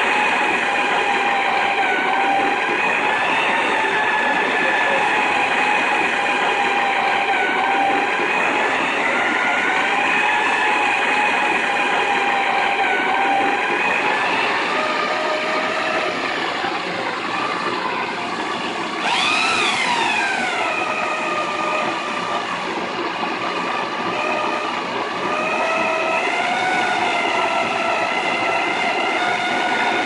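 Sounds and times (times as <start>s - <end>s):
electric drill motor whining: 0.0s - 30.0s
grain being crushed in mill: 19.0s - 30.0s.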